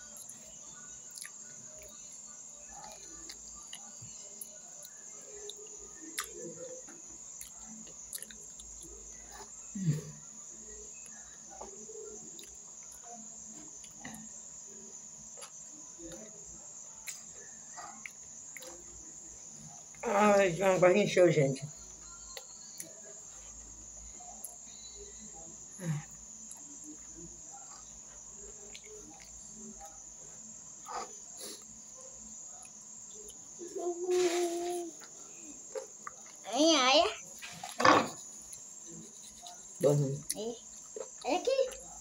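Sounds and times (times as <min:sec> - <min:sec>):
crickets trilling: 0:00.0 - 0:42.0
faint clicks of eating by hand: 0:28.6 - 0:30.0.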